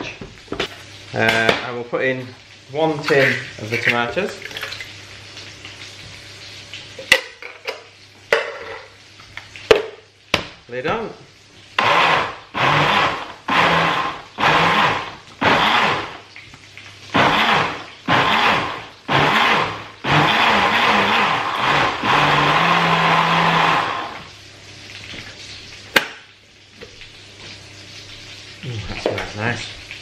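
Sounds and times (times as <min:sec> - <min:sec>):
blender motor pulsing: 0:11.8 - 0:16.3, 0:17.1 - 0:24.3.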